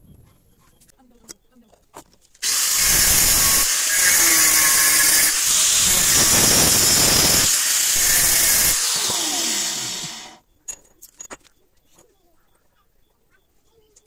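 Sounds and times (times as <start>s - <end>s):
angle grinder cutting steel: 2.4s - 10.4s.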